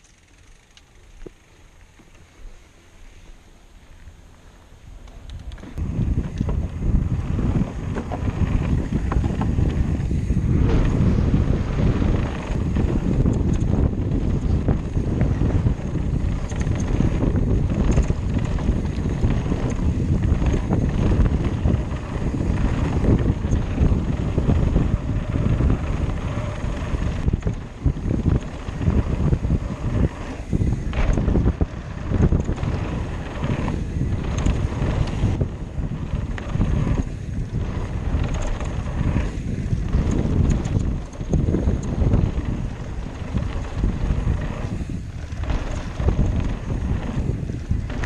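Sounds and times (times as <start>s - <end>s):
wind buffeting microphone: 5.0s - 48.0s
bike knocks and rattles: 5.4s - 48.0s
bike tyres rumbling on dirt: 5.6s - 48.0s.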